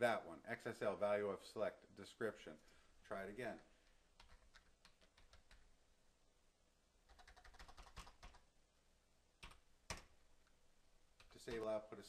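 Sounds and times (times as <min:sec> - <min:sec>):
computer keyboard typing: 0:04.2 - 0:05.7, 0:07.1 - 0:08.5, 0:09.4 - 0:10.2.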